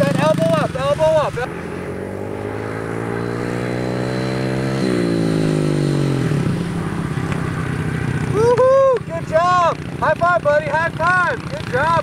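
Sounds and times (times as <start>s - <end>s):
dirt bike engine: 0.0s - 12.0s.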